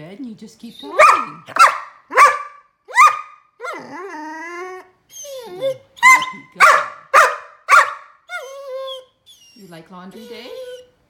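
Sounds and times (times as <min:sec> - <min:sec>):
puppy barking: 0:00.8 - 0:03.8, 0:06.0 - 0:08.5.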